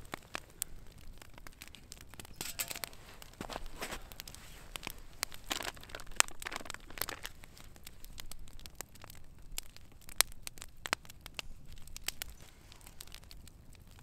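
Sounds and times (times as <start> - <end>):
campfire crackling and popping: 0.0 - 14.0
rustling and handling noise: 1.3 - 8.3.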